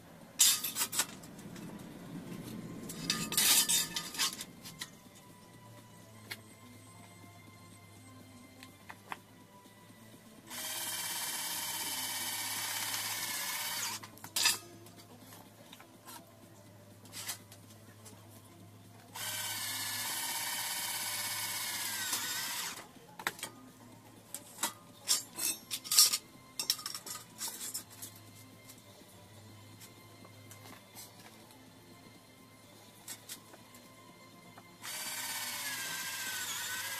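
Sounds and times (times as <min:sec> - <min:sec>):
cordless drill running on metal: 0:10.5 - 0:14.0, 0:19.2 - 0:22.8, 0:34.8 - 0:36.9.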